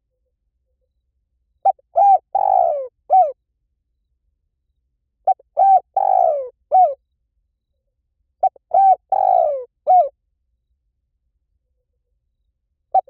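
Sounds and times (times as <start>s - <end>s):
dove cooing: 1.6s - 3.4s, 5.2s - 7.0s, 8.4s - 10.2s.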